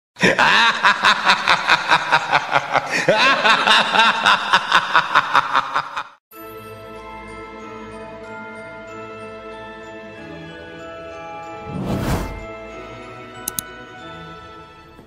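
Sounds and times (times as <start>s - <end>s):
high-pitched cackling laugh: 0.2s - 6.2s.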